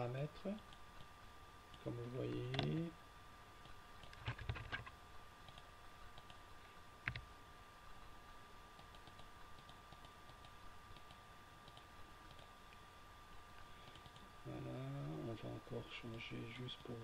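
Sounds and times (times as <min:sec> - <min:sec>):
faint steady hum: 0:00.0 - 0:17.0
mouse clicks: 0:08.8 - 0:12.8.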